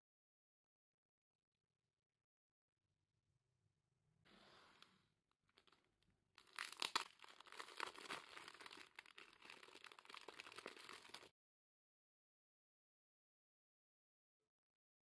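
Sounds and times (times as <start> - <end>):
plastic bag crinkling: 5.6 - 5.8, 6.4 - 11.3
bread roll tearing: 6.4 - 11.3.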